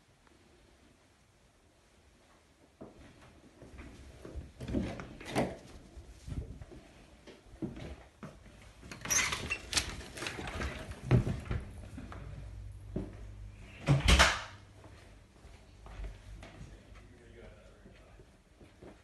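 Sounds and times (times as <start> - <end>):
footsteps: 9.9 - 13.7, 14.7 - 19.0.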